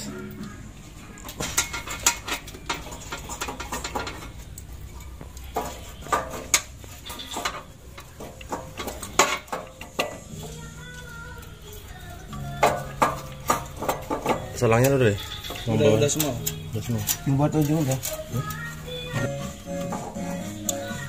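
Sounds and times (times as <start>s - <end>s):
metallic clinks and knocks: 1.1s - 10.5s.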